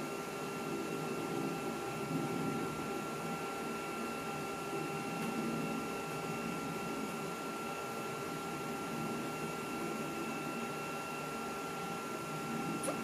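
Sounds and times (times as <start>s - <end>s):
computer machine hum: 0.0s - 13.0s.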